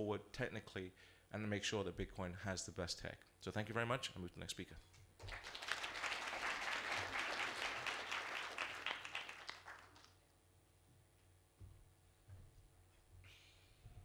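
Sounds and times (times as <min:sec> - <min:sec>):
audience applauding: 0:05.2 - 0:10.2.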